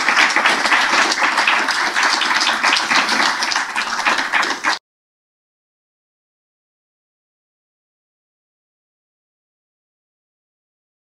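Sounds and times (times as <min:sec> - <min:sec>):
audience applauding: 0:00.0 - 0:04.8.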